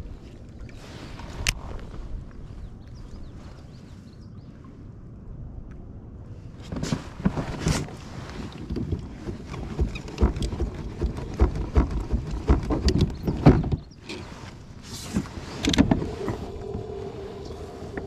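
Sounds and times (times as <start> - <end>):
gear knocking and clattering: 8.8 - 13.9
steady hum: 15.8 - 18.0.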